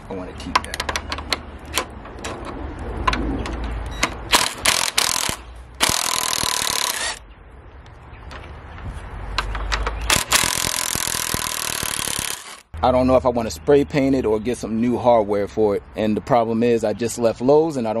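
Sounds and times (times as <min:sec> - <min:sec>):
impact driver hammering screw: 0:04.3 - 0:07.2, 0:10.1 - 0:12.6.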